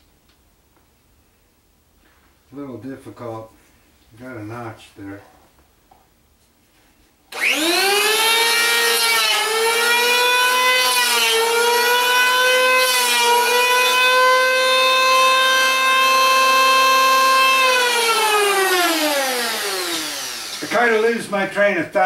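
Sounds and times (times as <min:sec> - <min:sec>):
circular saw cutting wood: 0:07.3 - 0:21.4.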